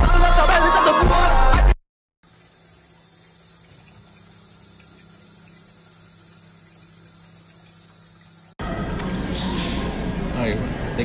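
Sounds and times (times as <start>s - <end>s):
tap water splashing into colander: 2.3s - 5.9s.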